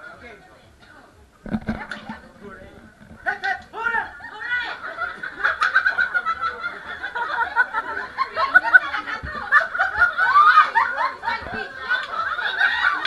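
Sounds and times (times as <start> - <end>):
people chattering: 0.0 - 13.0
group of people laughing: 4.0 - 13.0.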